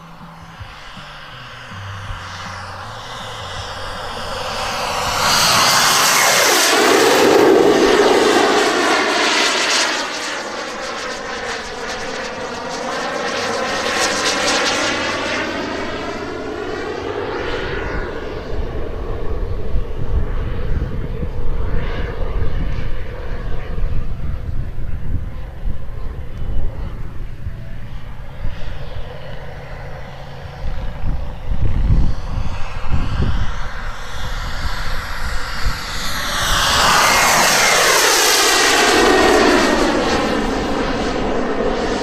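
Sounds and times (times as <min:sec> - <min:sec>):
gusty low rumble: 0:00.0 - 0:09.1, 0:17.8 - 0:42.0
model jet turbine whine passing: 0:00.0 - 0:42.0.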